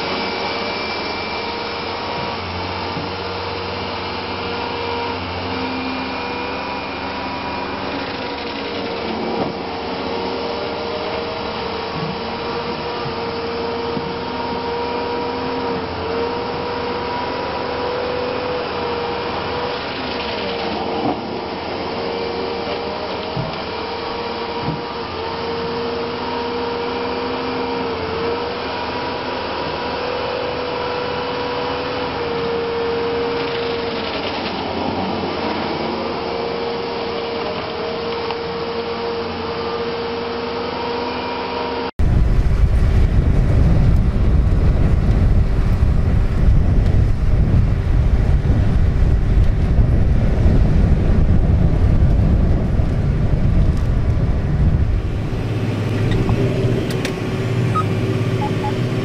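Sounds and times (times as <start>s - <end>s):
firewood processor sawing logs: 0.0s - 44.1s, 52.4s - 59.0s
tractor engine low rumble: 42.0s - 59.0s.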